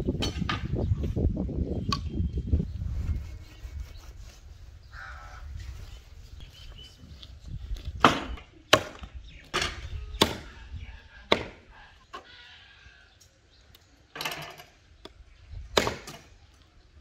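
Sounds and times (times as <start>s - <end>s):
cleaver chopping meat on wood: 11.3s - 11.6s.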